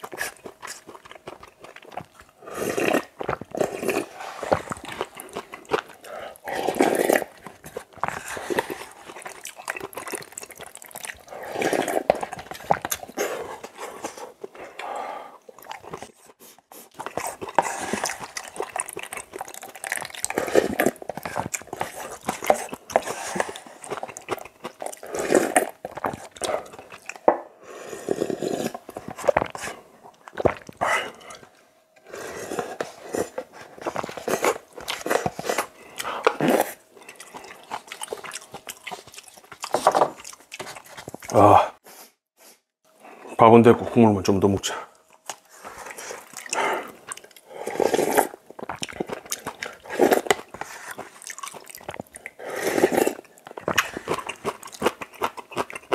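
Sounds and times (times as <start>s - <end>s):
wet slurps of noodles: 45.5s - 48.4s, 52.3s - 53.2s.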